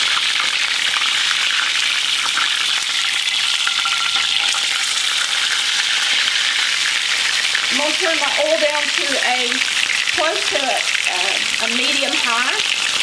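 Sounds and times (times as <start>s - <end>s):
steak sizzling in a skillet: 0.0s - 13.0s.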